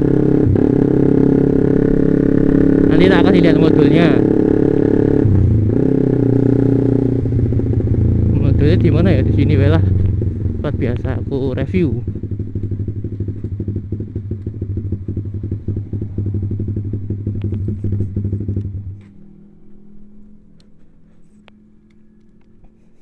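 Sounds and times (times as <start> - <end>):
motorcycle engine idling: 0.0 - 22.8
motorcycle engine running: 0.0 - 23.0.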